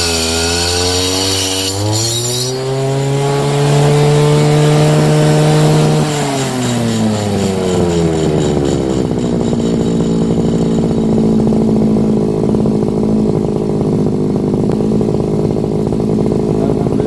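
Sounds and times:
brush cutter engine idling: 4.9s - 17.0s.

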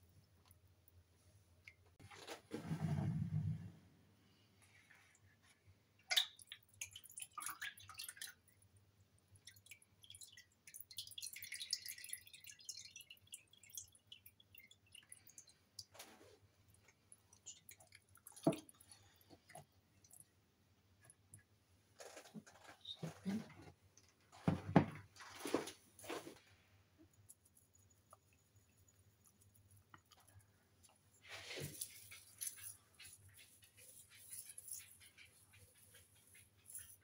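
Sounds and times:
brine dripping into bowl: 6.0s - 16.0s, 16.6s - 21.6s.

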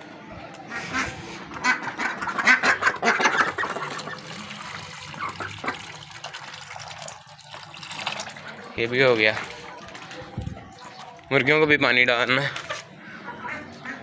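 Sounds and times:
ducks quacking: 0.6s - 6.0s, 10.6s - 14.0s
ducks dabbling bills in dish: 1.5s - 11.4s
water pouring into dish: 3.1s - 10.4s.

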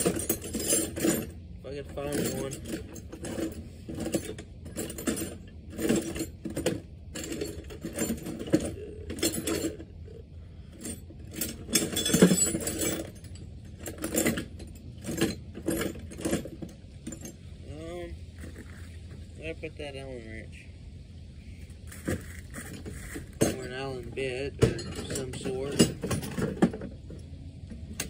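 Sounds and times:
metal hand tools clinking: 1.9s - 6.3s, 10.8s - 17.3s, 24.6s - 26.7s.

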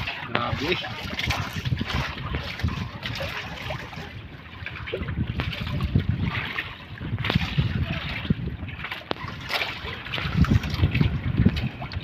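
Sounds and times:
water lapping and trickling: 0.0s - 12.0s
low rumble: 1.0s - 12.0s.

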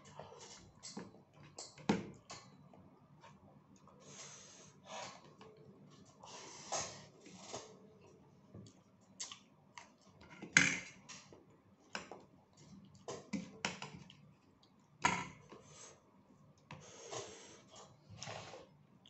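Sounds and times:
man chewing and mouth smacks: 8.6s - 10.1s.

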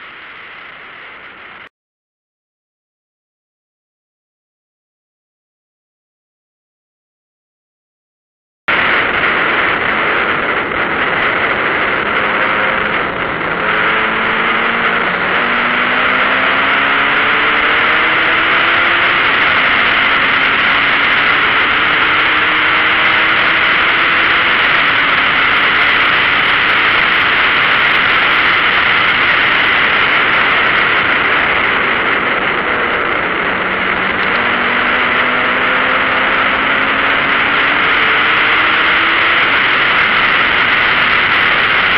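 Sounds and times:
wind and road noise: 0.0s - 1.7s, 8.7s - 41.9s
car engine accelerating: 8.7s - 41.9s.

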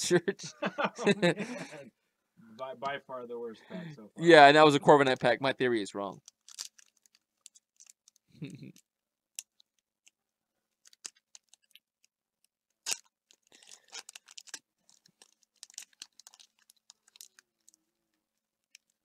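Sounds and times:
foil wrapper crinkling and tearing: 6.2s - 8.3s, 10.8s - 11.8s, 12.8s - 17.8s.

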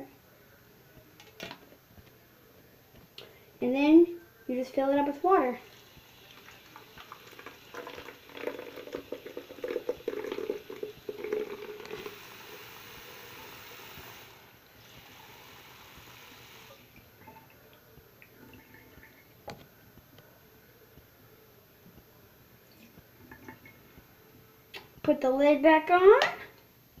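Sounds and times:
faucet water splashing into bottle: 6.2s - 12.2s.

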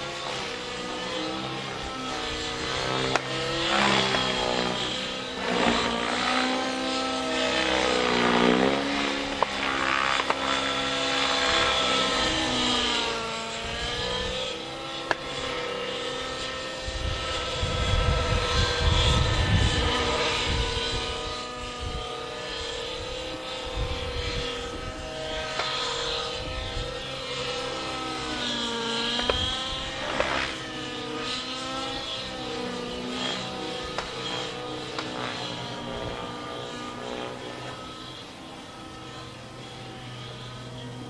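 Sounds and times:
model helicopter whine: 0.0s - 41.0s
wind buffeting microphone: 16.8s - 22.3s, 22.9s - 25.5s.

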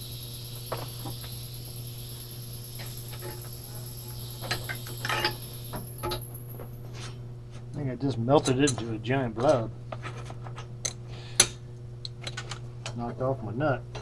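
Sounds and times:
welding arc hissing and whining: 0.0s - 7.0s.

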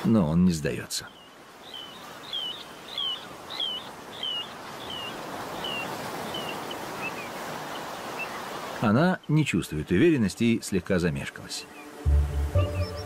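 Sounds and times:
plover whistled calls: 1.1s - 7.3s, 11.6s - 13.0s.

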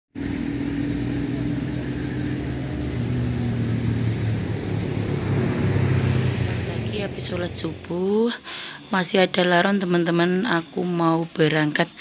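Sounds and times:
vehicle engine humming: 0.2s - 9.2s.

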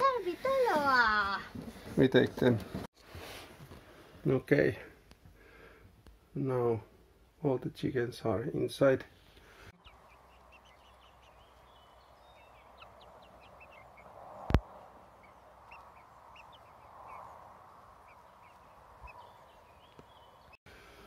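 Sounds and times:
chicks peeping: 9.7s - 20.6s.

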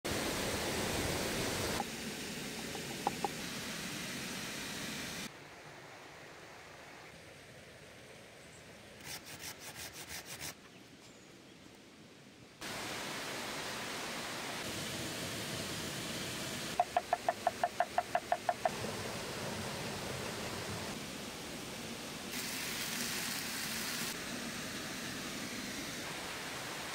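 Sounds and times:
waterfall rushing: 0.1s - 5.3s, 12.6s - 26.9s.

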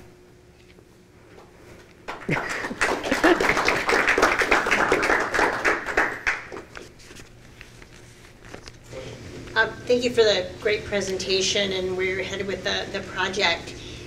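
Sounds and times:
group applauding: 2.0s - 6.8s.

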